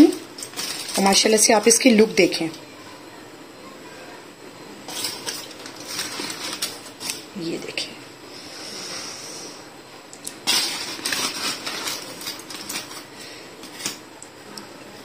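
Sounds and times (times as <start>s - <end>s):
foil crinkling: 0.0s - 1.5s, 4.9s - 7.3s, 10.3s - 14.0s.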